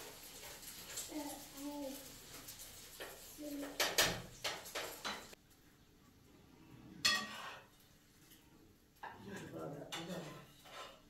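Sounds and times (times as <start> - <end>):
dishes and cutlery clattering: 0.0 - 5.4, 7.0 - 7.8, 9.0 - 11.0.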